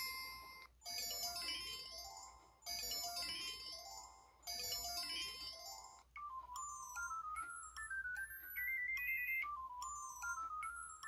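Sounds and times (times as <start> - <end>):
electronic phone ringtone chime: 0.0 - 11.0.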